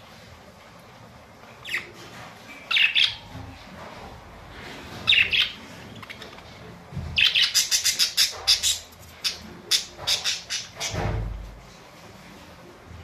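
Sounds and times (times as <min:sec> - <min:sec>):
budgerigars chirping: 0:02.7 - 0:03.2, 0:05.0 - 0:06.4, 0:07.2 - 0:11.0.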